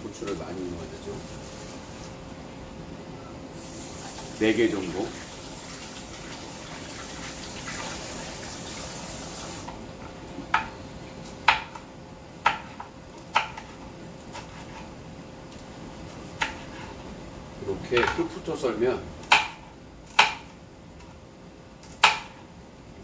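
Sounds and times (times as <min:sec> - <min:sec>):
kitchen tap running: 0:03.6 - 0:09.7.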